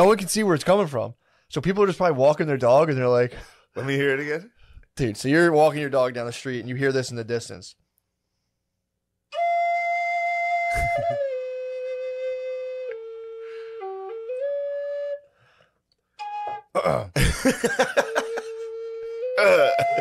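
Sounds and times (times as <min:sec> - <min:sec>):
wooden flute melody: 0:09.3 - 0:15.4, 0:16.2 - 0:16.8, 0:18.1 - 0:20.0.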